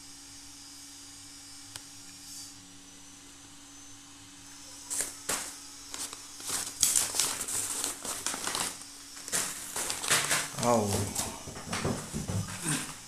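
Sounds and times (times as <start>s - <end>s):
plastic packets crinkling: 4.9s - 11.4s.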